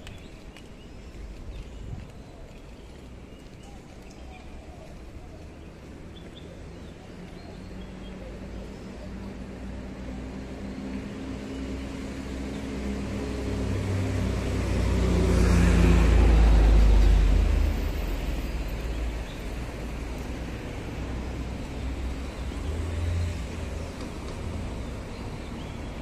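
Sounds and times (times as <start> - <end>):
vehicle engine passing: 9.8 - 18.8.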